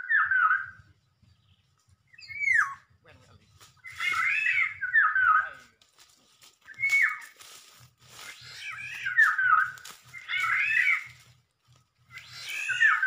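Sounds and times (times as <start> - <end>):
bird down-slurred calls: 2.1 - 2.9, 3.6 - 5.6, 8.2 - 11.3, 12.0 - 13.0.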